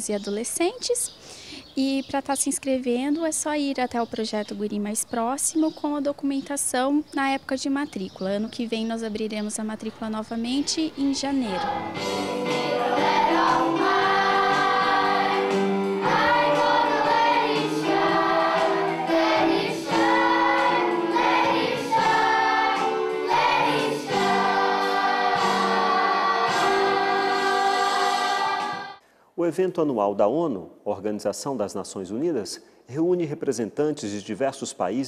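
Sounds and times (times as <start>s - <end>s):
children's choir singing: 11.1s - 29.0s.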